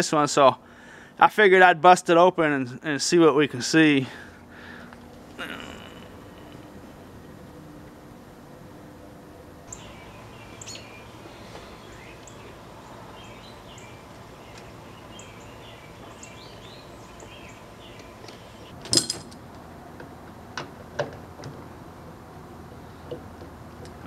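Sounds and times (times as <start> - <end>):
steady background noise: 0.0 - 24.0
small birds chirping: 9.7 - 18.8.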